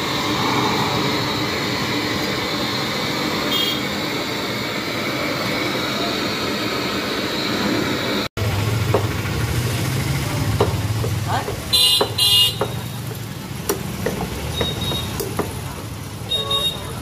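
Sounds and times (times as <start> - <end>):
gas blowtorch rushing: 0.0 - 8.3.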